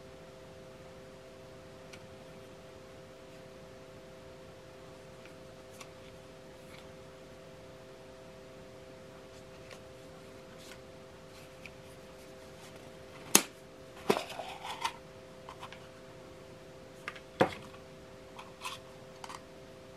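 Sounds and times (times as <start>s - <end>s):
faint steady hum: 0.0s - 19.9s
plastic scrape: 14.0s - 15.8s.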